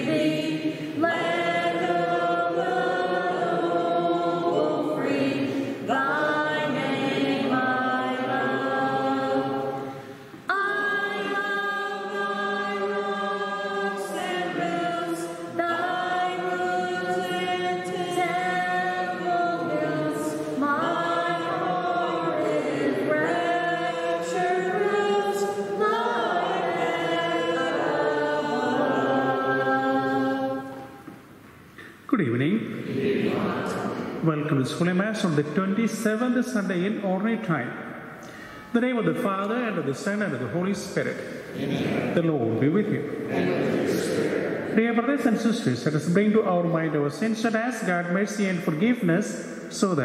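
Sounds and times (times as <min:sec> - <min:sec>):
choir singing slow hymn: 0:00.0 - 0:31.4, 0:32.6 - 0:34.8, 0:41.0 - 0:45.5.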